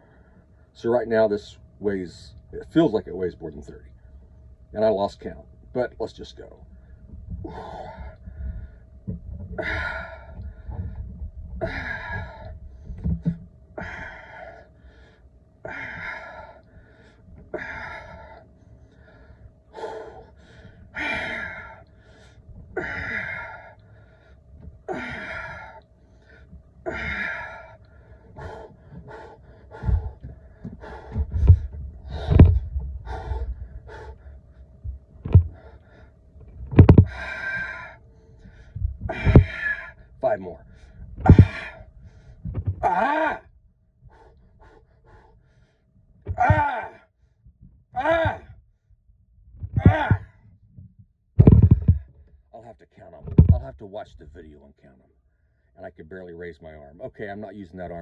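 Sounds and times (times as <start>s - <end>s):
man breathing hard: 6.7s - 48.7s, 51.4s - 52.4s
loud low thumps: 29.8s - 33.7s, 41.2s - 41.7s, 51.4s - 52.1s.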